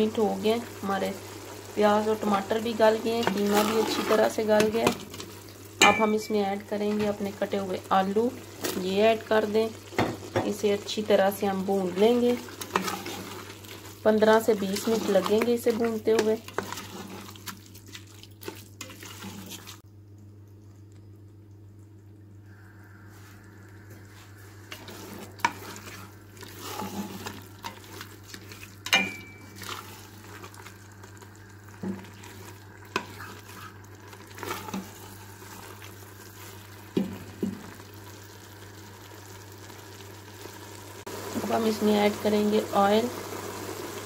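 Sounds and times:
spoon stirring food in metal pot: 0:11.8 - 0:19.8, 0:24.7 - 0:37.5
steady low hum: 0:19.8 - 0:36.9.

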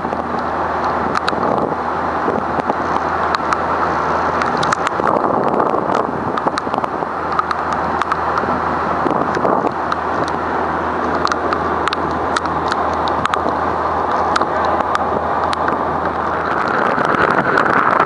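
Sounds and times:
boat engine drone: 0:00.0 - 0:18.0
rushing water: 0:00.0 - 0:18.0
wind on microphone: 0:00.0 - 0:18.0.

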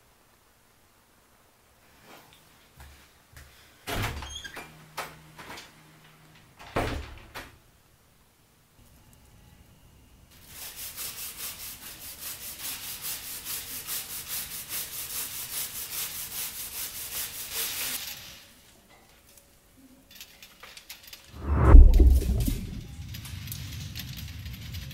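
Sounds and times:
rapid scraping strokes: 0:21.4 - 0:23.0.

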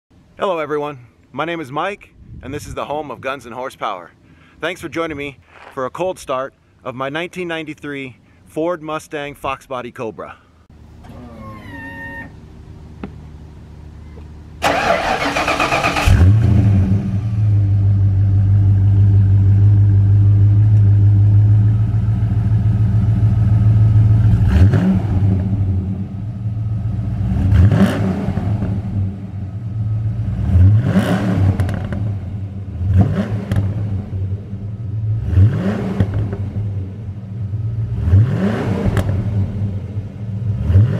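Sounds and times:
raspy car engine revving: 0:14.6 - 0:19.9, 0:24.1 - 0:26.2, 0:26.8 - 0:40.9.

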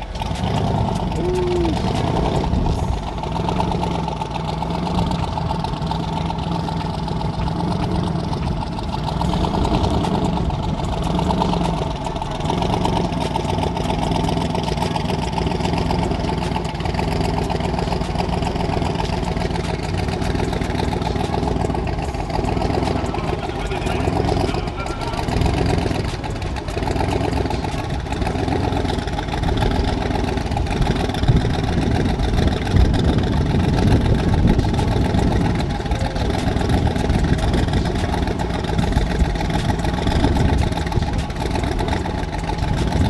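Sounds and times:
drag car engine idling: 0:00.0 - 0:43.0.

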